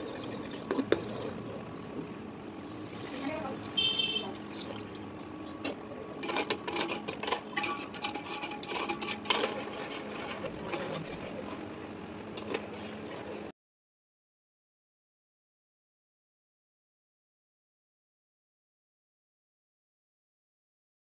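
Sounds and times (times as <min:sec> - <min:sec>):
steady hum: 0:00.0 - 0:13.5
spoon clinking against metal pot: 0:06.2 - 0:09.6.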